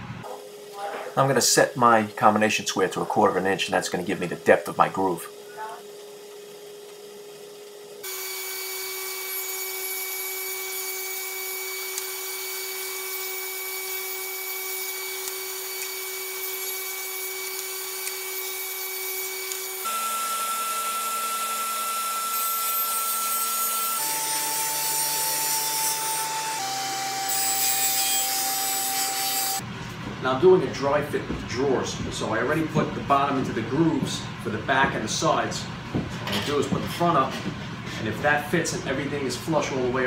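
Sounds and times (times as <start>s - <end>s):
table saw whining: 8.0s - 29.6s.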